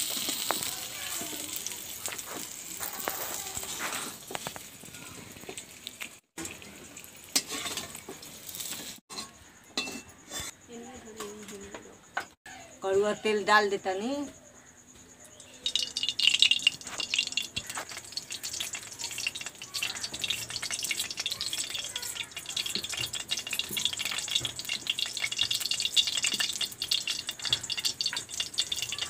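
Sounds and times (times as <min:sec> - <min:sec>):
oil sizzling and crackling: 0:00.0 - 0:09.2, 0:15.4 - 0:29.0.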